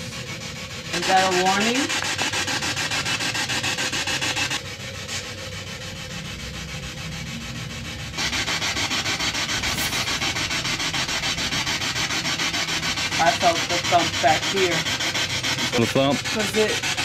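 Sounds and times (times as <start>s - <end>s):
pulsing radio static: 9.4s - 12.0s.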